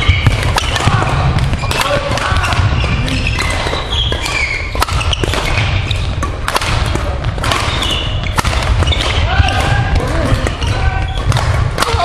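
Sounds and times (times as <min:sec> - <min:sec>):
shoes squeaking on court: 0:00.0 - 0:00.8, 0:01.4 - 0:06.4, 0:07.5 - 0:09.3
rackets striking shuttlecocks: 0:00.0 - 0:12.0.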